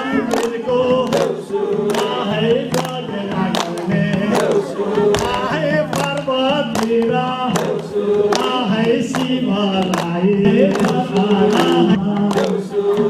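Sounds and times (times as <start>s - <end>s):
hands clapping beat: 0.0s - 13.0s
men singing folk song: 0.0s - 13.0s
lead voice through microphone: 9.5s - 13.0s.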